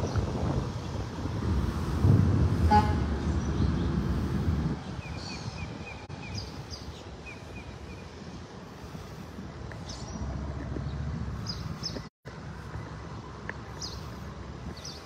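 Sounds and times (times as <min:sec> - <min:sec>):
wind rumbling on microphone: 0:00.0 - 0:15.0
small birds chirping: 0:03.4 - 0:09.0, 0:09.7 - 0:12.1, 0:13.6 - 0:15.0.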